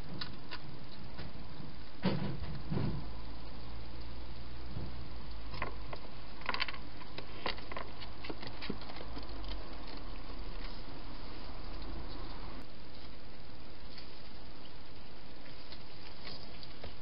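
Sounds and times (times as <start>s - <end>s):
hedgehog eating and moving: 0.0s - 17.0s
low steady hum: 0.0s - 17.0s
small clicks and crackles: 5.3s - 10.9s.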